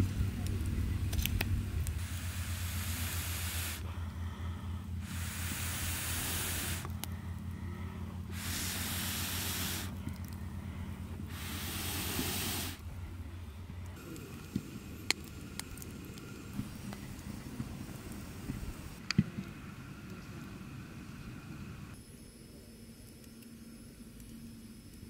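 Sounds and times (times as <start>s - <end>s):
steady low hum: 0.0s - 25.0s
hissing puffs of air on embers: 1.8s - 12.9s, 13.8s - 22.0s.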